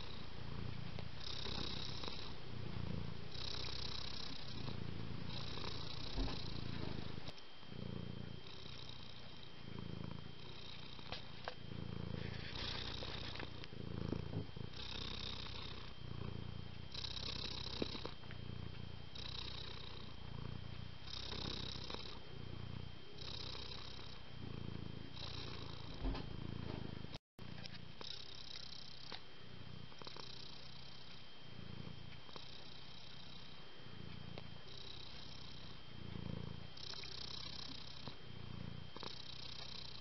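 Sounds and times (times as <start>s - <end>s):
cat purring: 0.0s - 40.0s.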